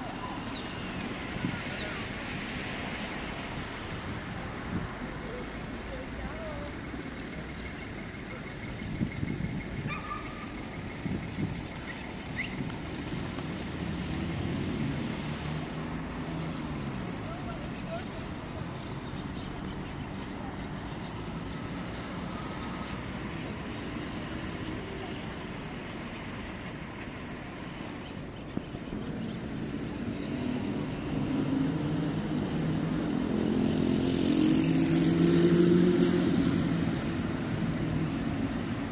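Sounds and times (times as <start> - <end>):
distant traffic: 0.0 - 38.9
vehicle engine passing by: 12.8 - 23.7, 28.9 - 38.9.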